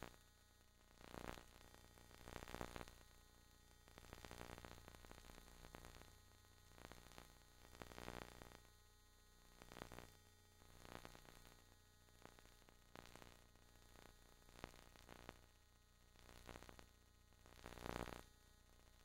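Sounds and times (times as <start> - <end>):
faint static hiss: 0.0 - 19.0.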